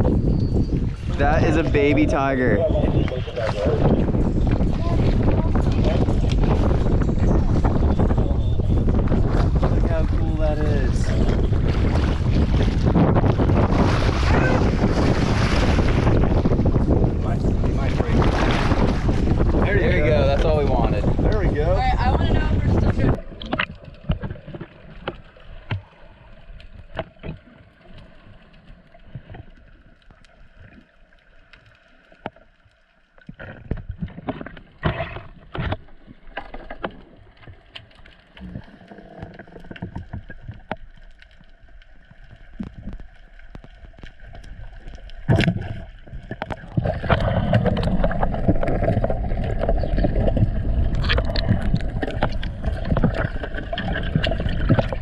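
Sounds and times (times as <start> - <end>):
rushing water: 0.0 - 55.0
muffled underwater noise: 1.0 - 12.5
clicks and crackles: 23.1 - 55.0.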